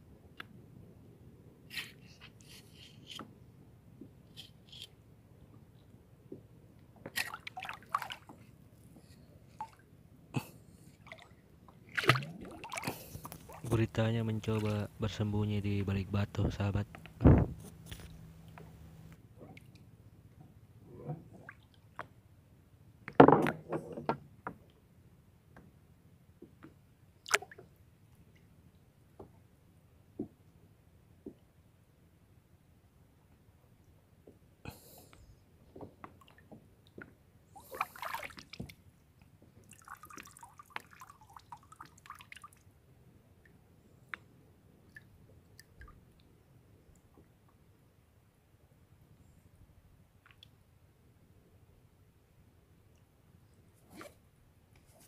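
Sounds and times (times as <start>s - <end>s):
underwater rustling: 11.8s - 15.1s
water gurgles: 11.9s - 15.2s
faint underwater clicks: 16.8s - 19.9s, 50.2s - 50.6s.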